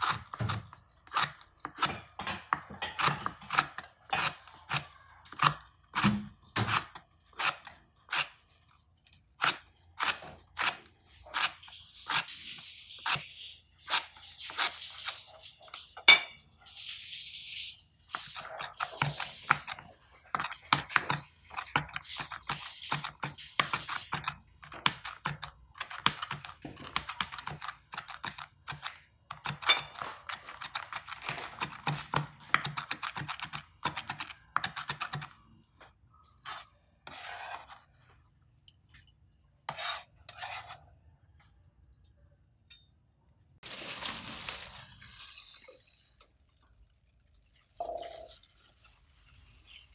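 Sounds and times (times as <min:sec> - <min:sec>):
rapid knife mincing: 0:02.8 - 0:08.4, 0:18.0 - 0:35.4.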